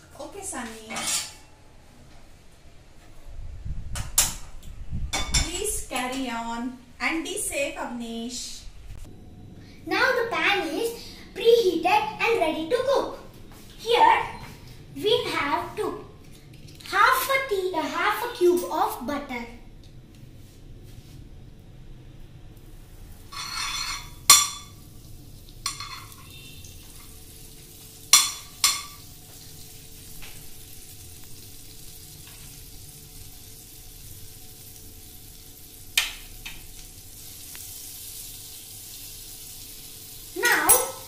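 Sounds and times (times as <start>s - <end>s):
butter sizzling: 23.2s - 41.0s.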